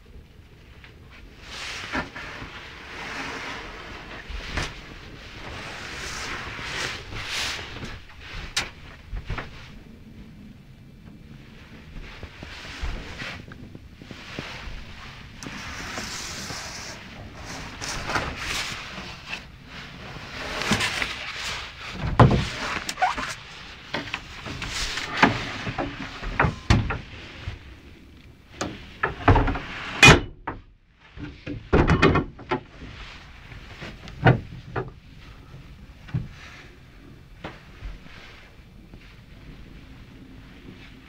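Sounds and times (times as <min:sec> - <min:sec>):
wooden cupboard doors opening and shutting: 0:21.9 - 0:27.6, 0:28.6 - 0:30.6, 0:31.2 - 0:32.7, 0:33.9 - 0:35.0.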